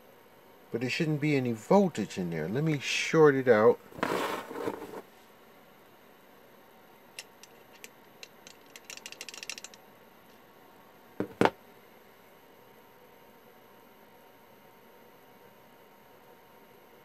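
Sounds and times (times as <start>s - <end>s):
sharp knocks: 11.2s - 11.6s.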